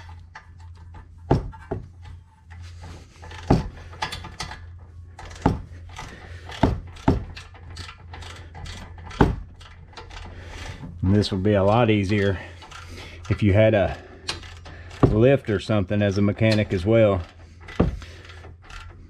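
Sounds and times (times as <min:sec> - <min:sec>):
low steady hum: 0:00.0 - 0:19.0
metal tools knocking and clinking: 0:03.2 - 0:10.3.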